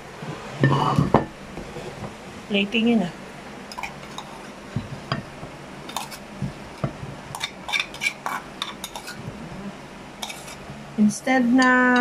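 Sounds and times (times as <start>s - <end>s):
utensil clinking on pan and plate: 3.7s - 5.3s, 5.9s - 6.2s, 6.8s - 9.2s, 10.2s - 10.6s.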